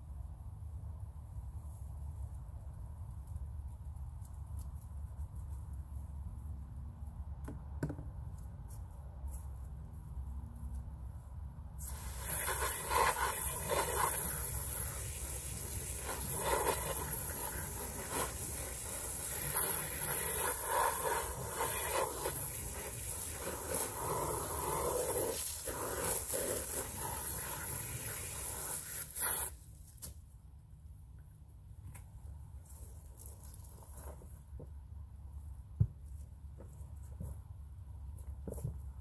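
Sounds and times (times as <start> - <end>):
hose nozzle spraying water on fabric: 11.8 - 29.7.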